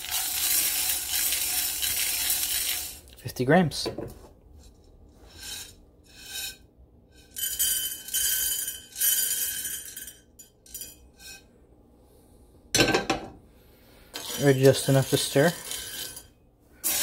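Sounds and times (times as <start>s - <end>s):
coffee beans rattling in metal pan: 0.0s - 3.2s, 5.3s - 6.6s, 7.2s - 11.4s, 14.1s - 17.0s
beans pouring into skillet: 0.0s - 3.3s, 7.3s - 10.0s, 14.2s - 16.2s.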